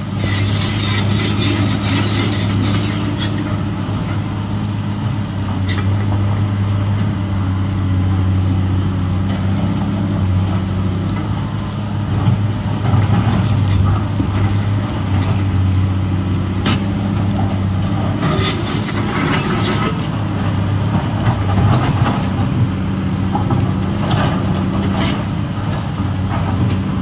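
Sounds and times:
diesel excavator engine running: 0.0 - 27.0
high metallic squeal: 0.2 - 3.5, 18.2 - 20.2.

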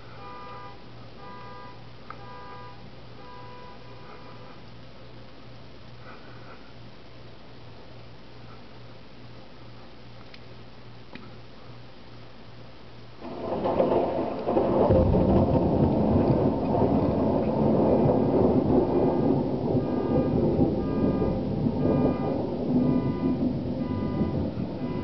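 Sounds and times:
thunder rumbling: 13.2 - 25.0.

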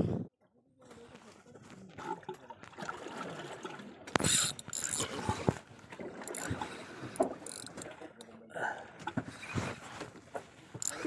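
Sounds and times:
fishing reel clicks and rattles: 4.2 - 5.3, 6.2 - 8.3, 10.8 - 11.0.

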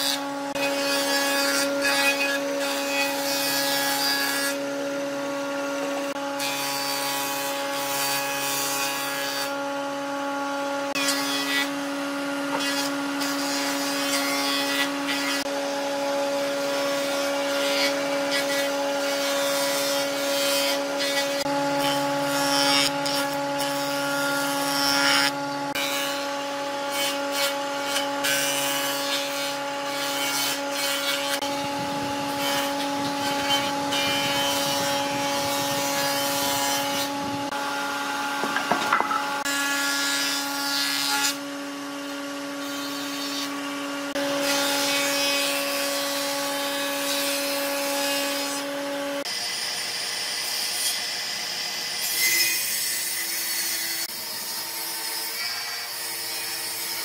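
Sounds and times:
power tool whining: 0.0 - 57.0
wood rasping: 26.9 - 41.4
small knocks: 38.4 - 39.4.

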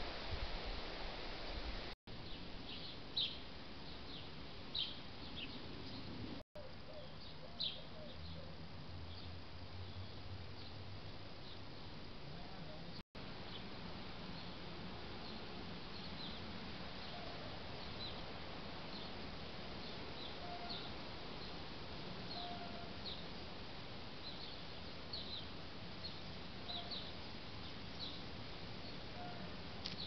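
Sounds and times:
steady hiss: 0.0 - 6.4, 8.6 - 30.0
sparrows chirping: 2.2 - 10.8, 15.2 - 18.3, 19.8 - 21.6, 22.2 - 23.5, 24.2 - 30.0.

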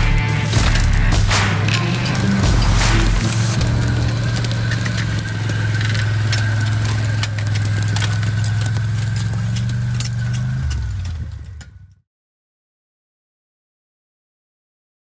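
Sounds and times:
hydraulic crane working: 0.0 - 11.8
engine running steadily: 0.0 - 11.9
sharp clicks and knocks: 0.0 - 12.0.

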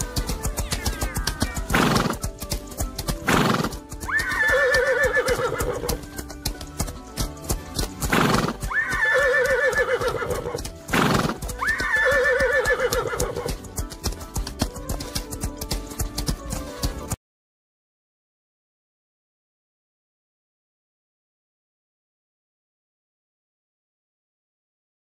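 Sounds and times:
background music: 0.0 - 17.2
galloping hoofbeats: 0.0 - 17.2
horse neighing: 3.3 - 6.1, 8.1 - 13.6.

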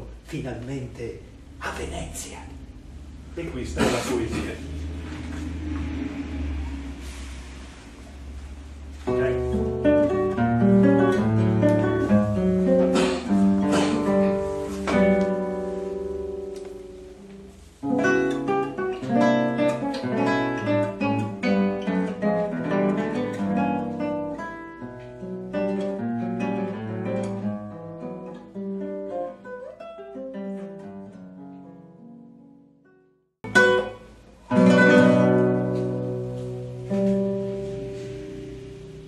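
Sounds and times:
acoustic guitar playing: 2.6 - 39.0.

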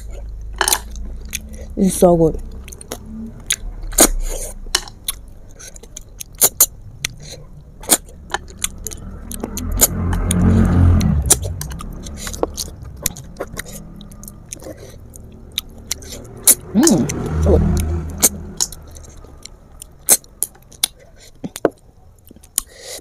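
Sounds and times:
vehicle passing with low rumble: 0.0 - 22.3.

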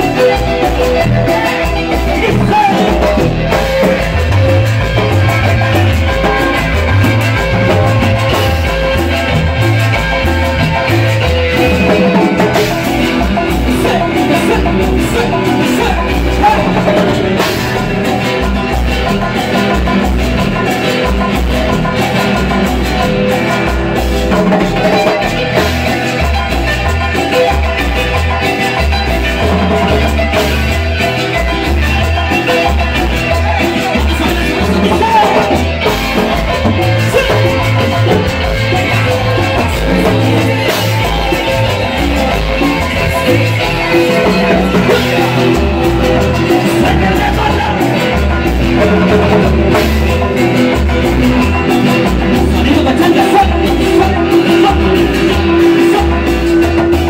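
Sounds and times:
band playing dance music: 0.0 - 57.0
person singing: 0.0 - 57.0.

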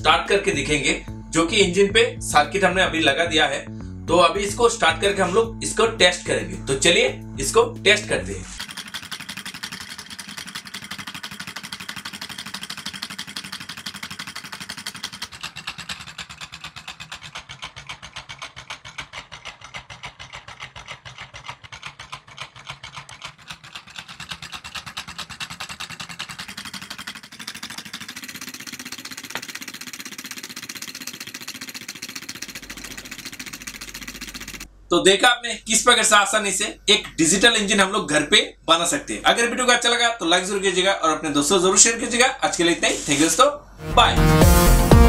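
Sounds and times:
solenoid engine clattering clicks: 8.6 - 34.7.

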